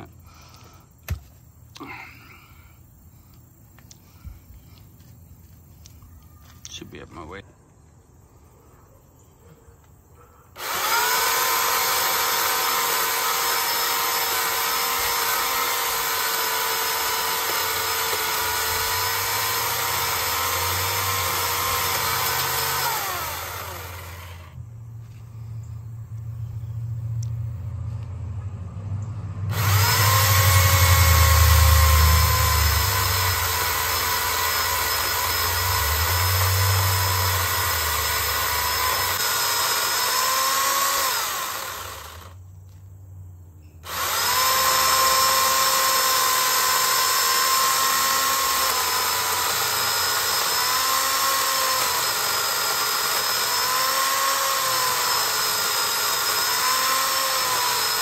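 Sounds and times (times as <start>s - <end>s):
electric chainsaw cutting wood: 10.5s - 24.6s, 29.4s - 42.4s, 43.8s - 58.0s.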